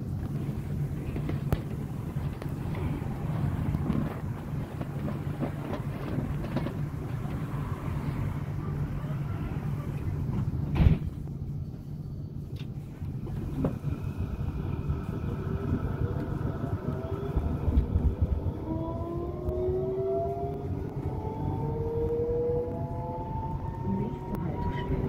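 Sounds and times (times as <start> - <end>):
tram low rumble: 0.0 - 25.0
loud thump: 10.7 - 11.2.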